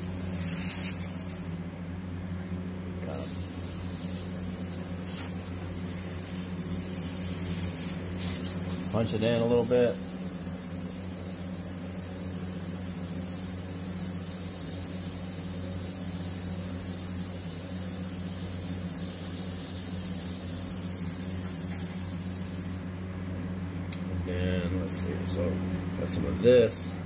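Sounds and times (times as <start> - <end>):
airbrush hissing: 0.0 - 1.6, 3.1 - 22.8.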